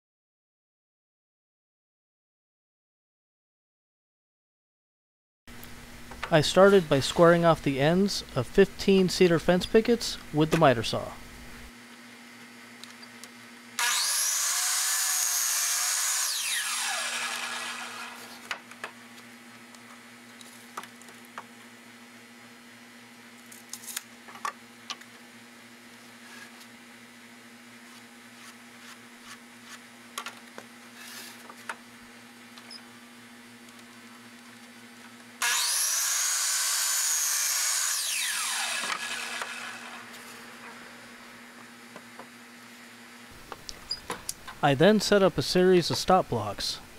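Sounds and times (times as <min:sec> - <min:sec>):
miter saw whine: 0:13.8 - 0:18.4, 0:35.4 - 0:40.2.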